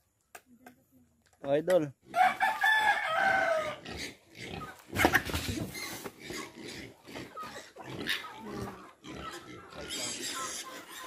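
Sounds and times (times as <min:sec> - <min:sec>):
pigs squealing: 0:02.1 - 0:11.0
pigs grunting: 0:03.5 - 0:11.0.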